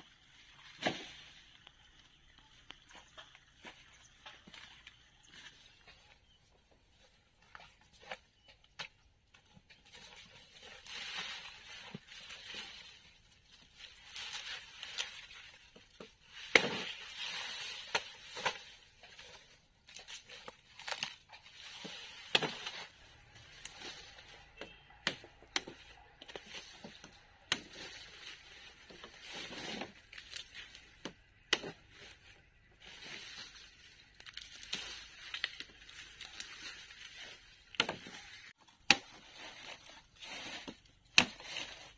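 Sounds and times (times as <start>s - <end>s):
crinkling and tearing handling noise: 25.2s - 41.9s.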